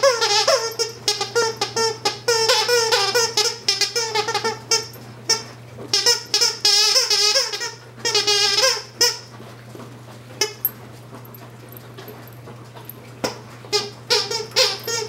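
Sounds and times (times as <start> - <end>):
toy squeaker squeaking: 0.0 - 5.0, 13.8 - 15.0.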